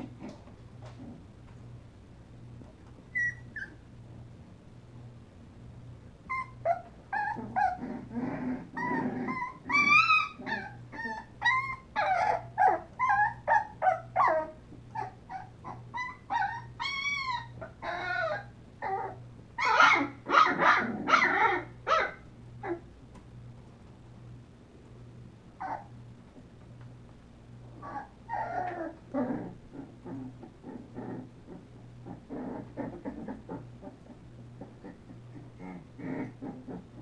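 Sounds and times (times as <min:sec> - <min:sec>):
puppies whining and yelping: 0:03.1 - 0:03.9, 0:06.2 - 0:22.9, 0:25.6 - 0:25.9, 0:27.7 - 0:37.0.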